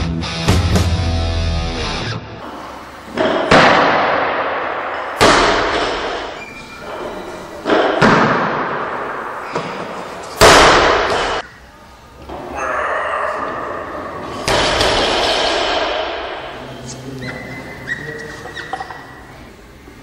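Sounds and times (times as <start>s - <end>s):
loud slams with echo: 3.1s - 6.4s, 7.6s - 11.4s, 13.6s - 16.6s.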